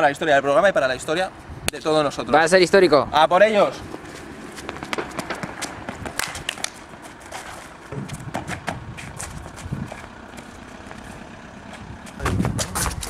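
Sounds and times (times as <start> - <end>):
outdoor street ambience: 0.0 - 13.0
sharp clicks and scuffs: 3.9 - 13.0.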